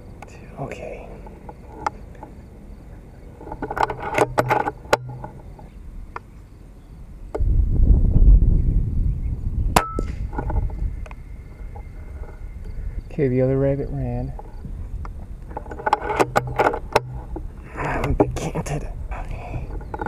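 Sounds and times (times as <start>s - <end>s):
low rumble: 7.4s - 15.5s
air rifle clicks and knocks: 14.4s - 18.4s.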